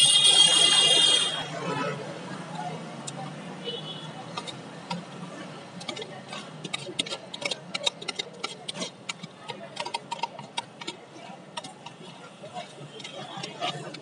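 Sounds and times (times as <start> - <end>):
metal spoon scraping metal cup: 4.3 - 11.0, 11.6 - 14.0.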